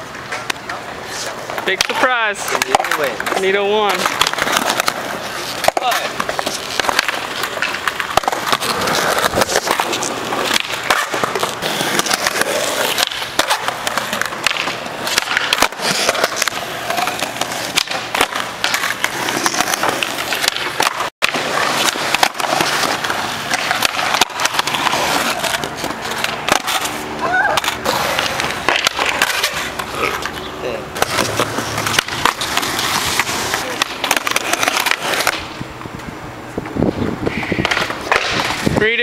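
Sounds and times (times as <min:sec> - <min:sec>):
skateboard wheels rolling on concrete: 0:00.0 - 0:39.0
skateboard tail popping and landing: 0:04.0 - 0:29.7, 0:37.6 - 0:38.8.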